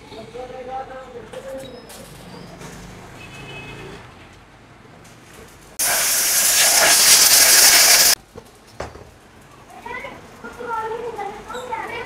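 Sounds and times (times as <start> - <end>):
compressed air hissing: 5.8 - 8.2.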